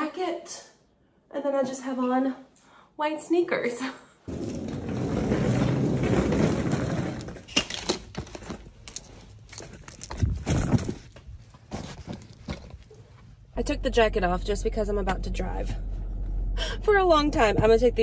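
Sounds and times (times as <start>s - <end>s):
suitcase rolling over hard floor: 4.3s - 8.6s.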